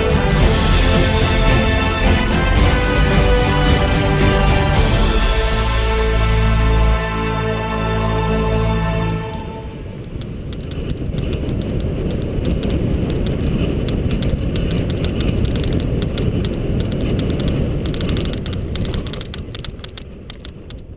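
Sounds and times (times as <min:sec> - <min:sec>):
wind buffeting microphone: 0:09.1 - 0:20.9
bike rattling clicks: 0:10.0 - 0:20.9.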